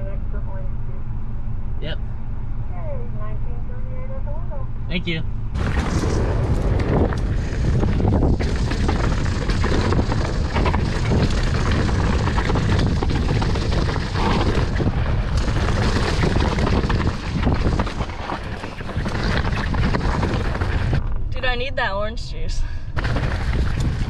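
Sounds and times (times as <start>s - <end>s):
wind rushing over microphone: 4.7s - 21.8s, 22.4s - 24.0s
bike rattling over bumps: 5.5s - 21.5s, 22.9s - 24.0s.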